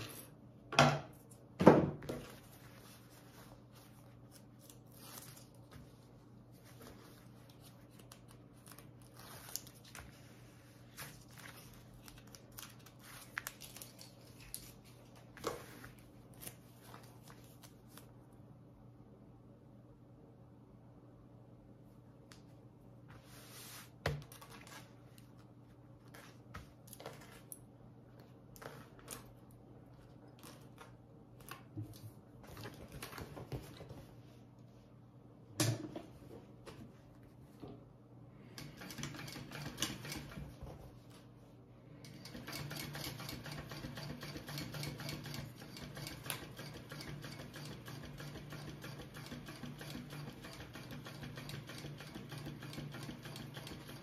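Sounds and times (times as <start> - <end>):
sewing machine ticking: 42.1 - 54.0.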